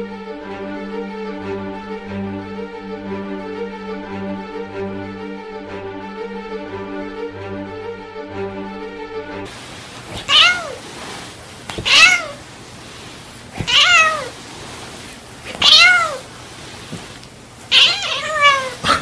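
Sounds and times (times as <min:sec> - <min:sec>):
cat meowing: 0:10.2 - 0:10.8, 0:11.7 - 0:12.4, 0:13.5 - 0:14.4, 0:15.5 - 0:16.3, 0:17.7 - 0:19.0.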